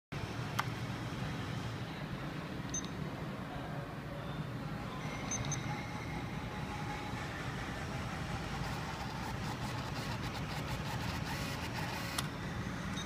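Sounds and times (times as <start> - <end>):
steady low hum: 0.2 - 13.0
card terminal key beeps: 2.7 - 3.0, 5.0 - 5.8.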